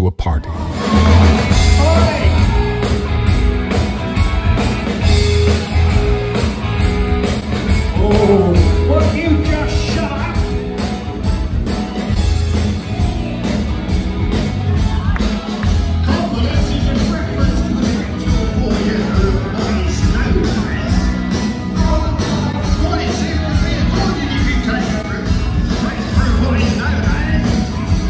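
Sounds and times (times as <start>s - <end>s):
live rock band playing: 0.5s - 28.0s
person singing: 7.9s - 10.0s.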